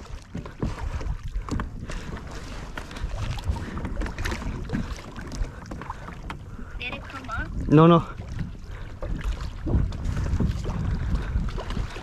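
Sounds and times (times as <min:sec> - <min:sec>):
water lapping against plastic hull: 0:00.0 - 0:12.0
wind buffeting microphone: 0:00.0 - 0:12.0.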